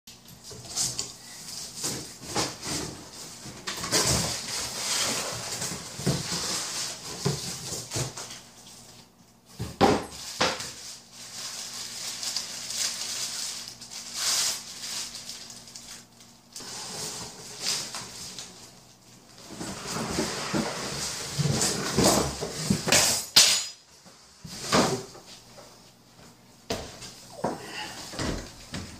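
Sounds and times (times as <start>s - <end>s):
cardboard rustling and scraping: 0.5s - 22.9s.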